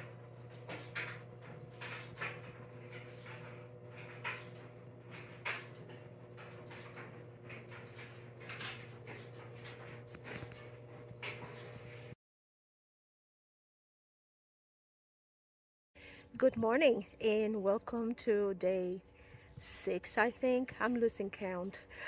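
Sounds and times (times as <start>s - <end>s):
low electrical hum: 0.0s - 12.2s.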